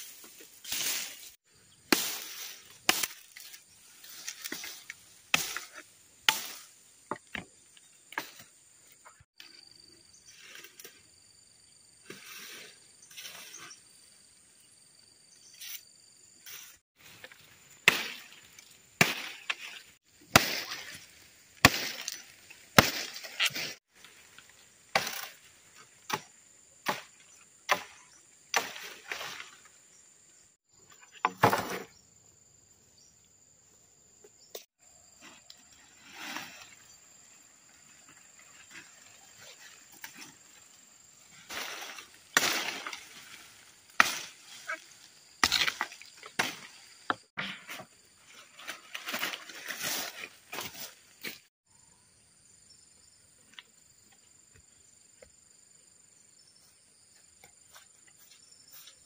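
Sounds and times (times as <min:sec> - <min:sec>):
dry bamboo cracking and snapping: 0:45.4 - 0:46.6.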